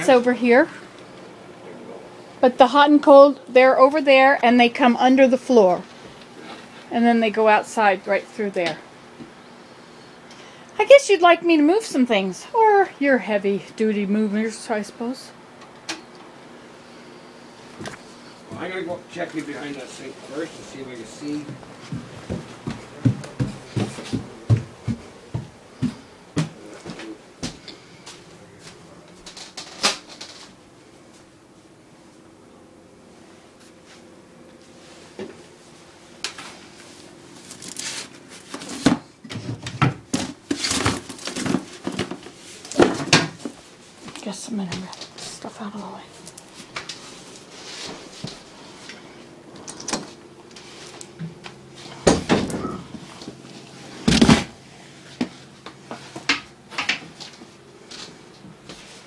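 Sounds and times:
footsteps: 17.7s - 29.4s
rustling of handled objects: 36.4s - 38.9s.

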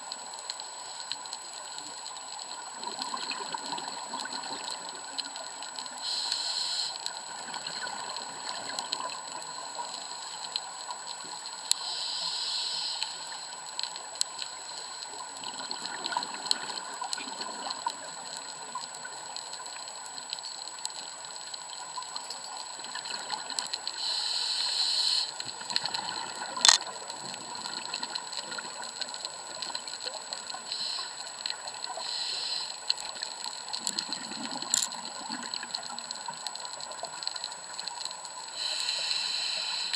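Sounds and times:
faint underwater clicks: 0.0s - 39.9s
exhaled bubbles rushing: 2.8s - 4.9s, 33.8s - 35.8s
diver regulator breathing: 6.0s - 7.0s, 11.8s - 13.3s, 24.0s - 25.4s, 32.0s - 32.8s, 38.6s - 39.9s.

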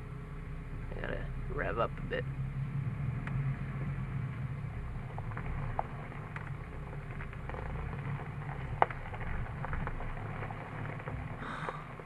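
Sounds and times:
car engine running low: 0.0s - 12.0s
small crackles and clicks: 5.1s - 12.0s.

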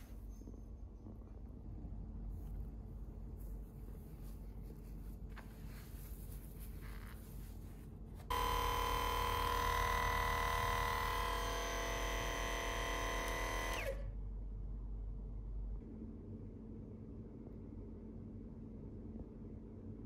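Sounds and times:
massage gun motor whine: 8.3s - 14.1s.

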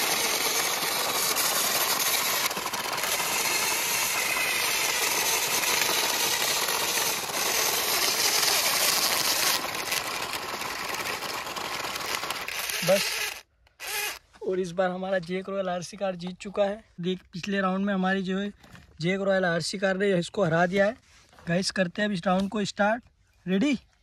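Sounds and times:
toy car motors buzzing: 0.0s - 14.2s.

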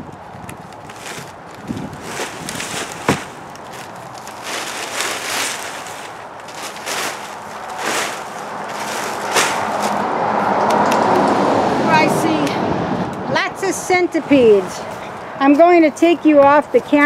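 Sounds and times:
compost rustling and scraping: 0.2s - 10.1s
sharp crack: 2.2s - 10.0s.

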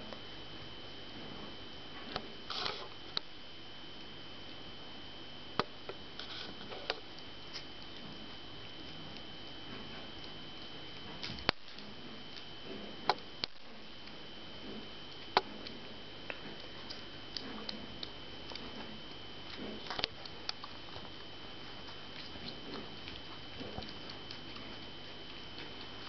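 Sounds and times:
puppies' paws clicking and pattering: 14.1s - 26.0s.

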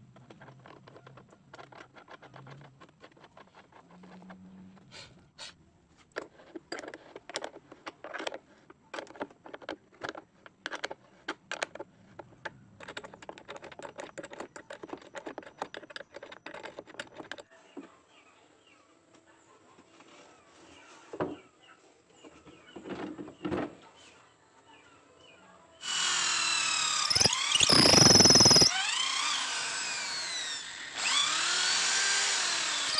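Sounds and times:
spanner clicking on a nut: 27.0s - 28.8s.

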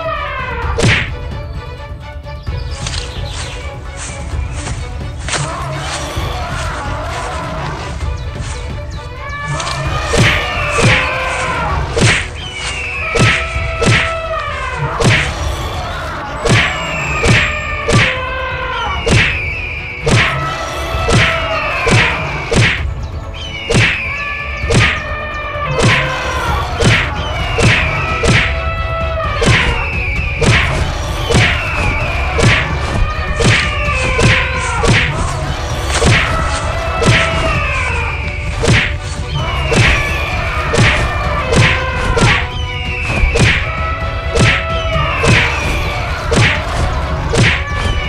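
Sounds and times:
cartoon thwacks and thuds: 0.8s - 1.2s, 10.1s - 11.0s, 12.0s - 12.3s, 13.1s - 14.2s, 15.0s - 15.3s, 16.4s - 18.1s, 19.1s - 19.4s, 20.1s - 20.4s, 21.1s - 22.8s, 23.7s - 24.0s, 24.7s - 25.0s, 25.8s - 26.0s, 26.8s - 28.6s, 29.4s - 29.7s, 30.4s - 31.6s, 32.4s - 32.8s, 33.4s - 35.2s, 36.0s - 36.4s, 37.0s - 37.5s, 38.6s - 39.0s, 39.7s - 40.0s, 40.7s - 42.4s, 43.2s - 43.7s, 44.4s - 45.5s, 46.3s - 46.7s, 47.3s - 47.6s.

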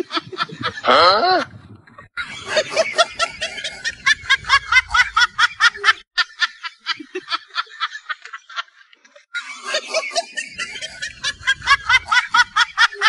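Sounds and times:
person giggling: 0.0s - 1.6s.

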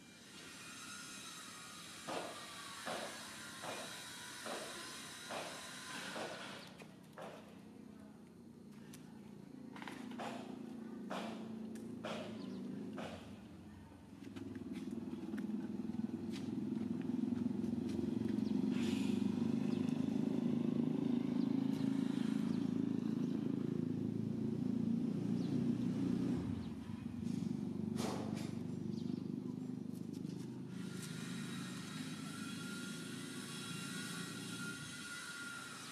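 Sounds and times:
vehicle engine running: 8.4s - 33.8s.

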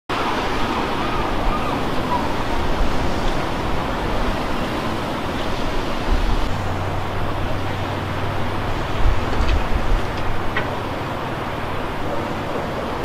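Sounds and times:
surf breaking on beach: 0.1s - 13.0s
wind buffeting microphone: 0.1s - 13.0s.

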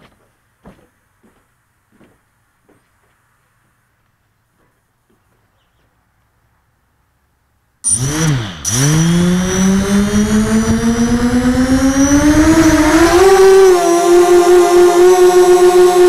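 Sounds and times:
drone motors whining: 7.8s - 16.0s.

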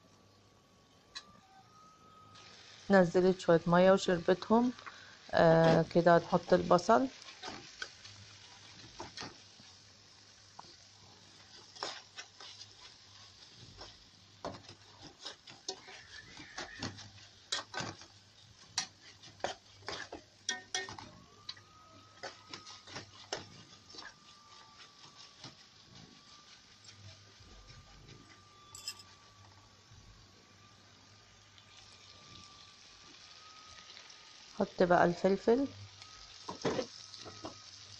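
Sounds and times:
faint sizzle: 0.0s - 37.9s
metal spatula scraping metal pan: 11.4s - 21.1s, 22.0s - 26.9s.

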